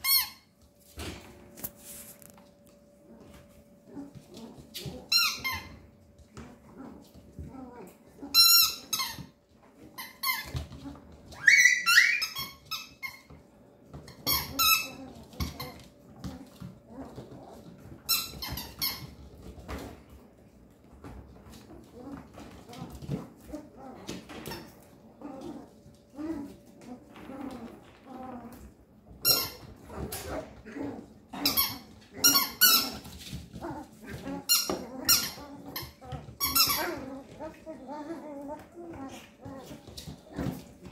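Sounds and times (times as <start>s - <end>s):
puppies yipping and yelping: 10.0s - 13.4s.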